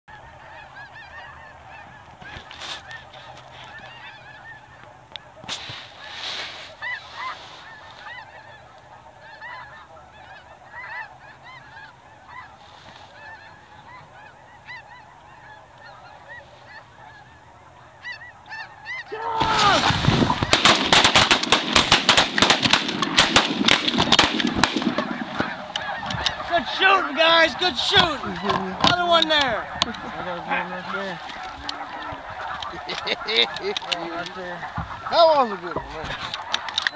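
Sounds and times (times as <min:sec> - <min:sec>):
geese honking: 0:00.1 - 0:36.9
shotgun fire: 0:19.4 - 0:25.0.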